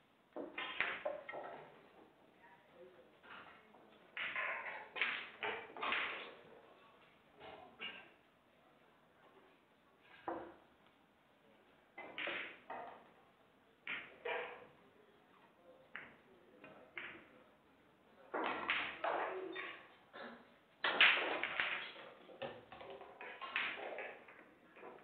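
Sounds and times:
pool balls clicking: 0.3s - 2.0s, 3.3s - 6.4s, 12.0s - 13.2s, 13.8s - 14.8s, 15.9s - 17.4s, 18.2s - 19.9s, 20.8s - 25.0s.

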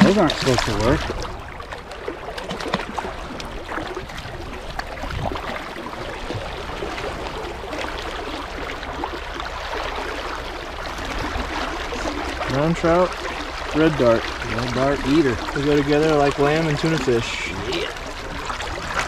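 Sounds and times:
fish splashing at surface: 0.0s - 19.0s
shallow river water running: 0.0s - 19.0s.

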